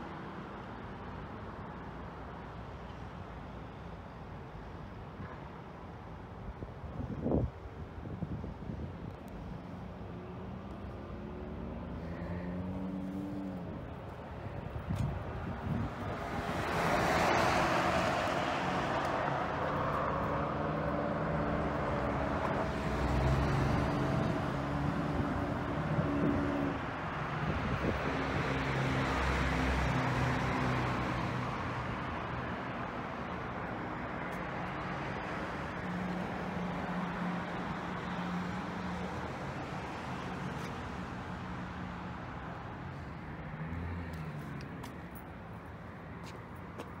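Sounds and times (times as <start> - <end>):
road noise: 0.0 - 47.0
engine hum: 10.1 - 33.5
vehicle passing: 42.8 - 45.2.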